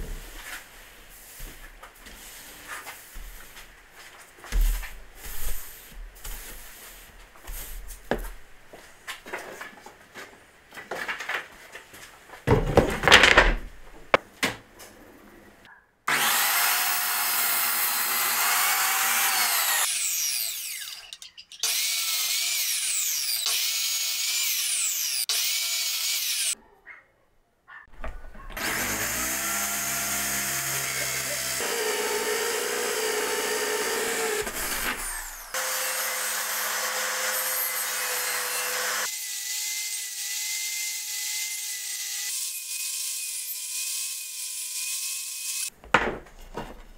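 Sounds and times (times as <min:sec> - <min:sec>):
hand brush sweeping sawdust: 0:00.2 - 0:08.0
electric drill drilling into wood: 0:16.1 - 0:26.6, 0:28.6 - 0:45.7
mitre saw motor whine: 0:28.6 - 0:39.0.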